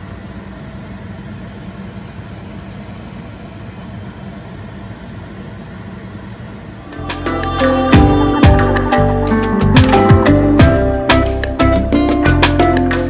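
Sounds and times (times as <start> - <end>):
machine humming with hiss: 0.0 - 13.0.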